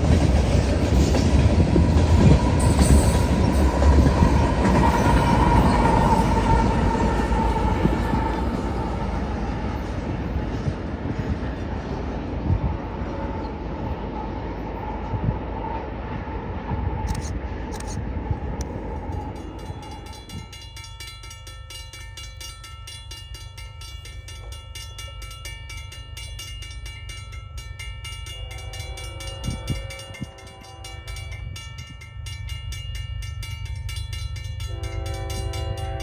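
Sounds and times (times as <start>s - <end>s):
crossing bell ringing rapidly: 19.0s - 36.0s
distant train horn chord: 28.2s - 31.6s, 34.4s - 36.0s.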